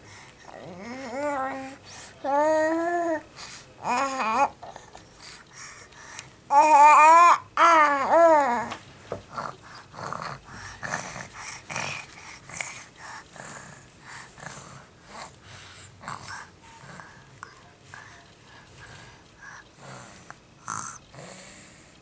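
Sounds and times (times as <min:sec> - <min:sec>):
baby breathing: 0:00.0 - 0:06.4, 0:09.3 - 0:21.9
baby cooing: 0:00.5 - 0:04.9, 0:06.5 - 0:08.7.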